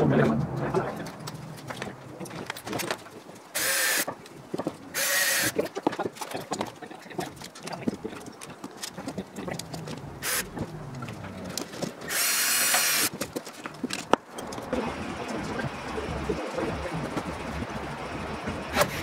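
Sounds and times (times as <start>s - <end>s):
cordless drill whine: 3.6s - 4.1s, 5.0s - 5.6s, 12.1s - 13.1s
clicks and knocks of handling: 5.6s - 12.1s, 13.1s - 14.7s.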